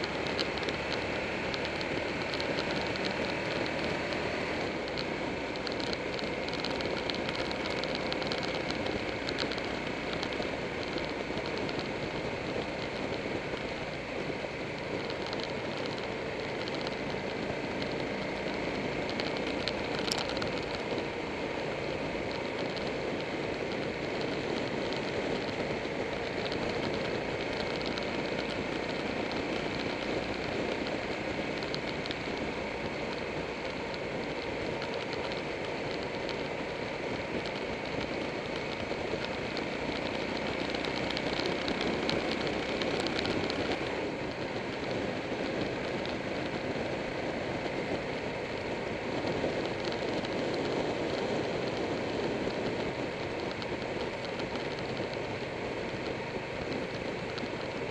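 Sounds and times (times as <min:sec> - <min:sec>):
motorcycle engine running: 0:00.0 - 0:57.9
road noise: 0:00.0 - 0:57.9.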